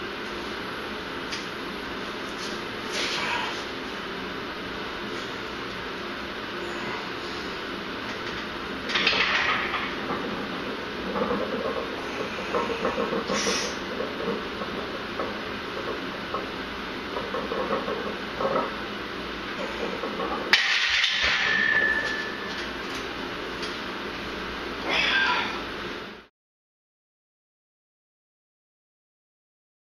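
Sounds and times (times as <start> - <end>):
forced breaths hissing: 13.3 - 13.9
barbell clank: 20.5 - 22.5
person straining: 24.8 - 25.6.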